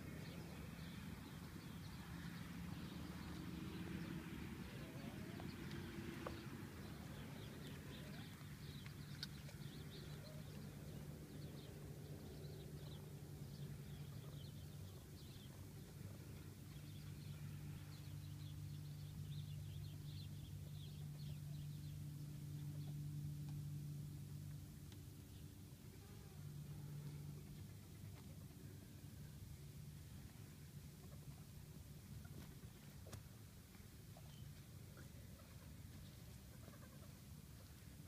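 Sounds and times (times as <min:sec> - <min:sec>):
steady low hum: 0:00.0 - 0:38.0
small birds chirping: 0:00.2 - 0:23.0.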